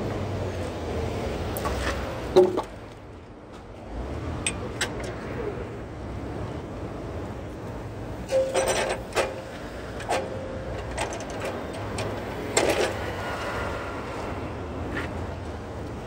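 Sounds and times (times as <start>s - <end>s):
wooden timbers knocking and scraping: 1.6s - 2.8s.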